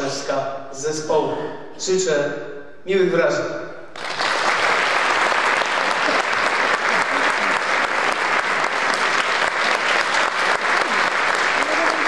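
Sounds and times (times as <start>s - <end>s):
audience clapping: 3.9s - 12.0s.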